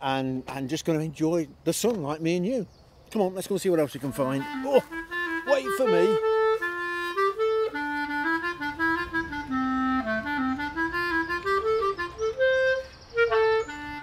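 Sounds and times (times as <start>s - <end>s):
woodwind melody: 3.8s - 14.0s.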